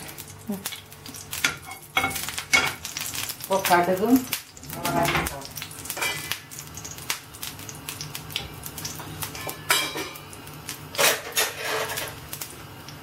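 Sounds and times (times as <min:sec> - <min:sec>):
oil crackling: 0:00.0 - 0:09.4
utensils clattering: 0:09.3 - 0:10.2, 0:10.9 - 0:12.2.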